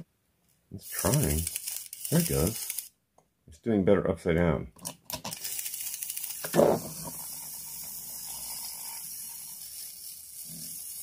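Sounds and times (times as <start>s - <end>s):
clockwork motor whirring: 0.9s - 2.9s, 5.3s - 11.0s.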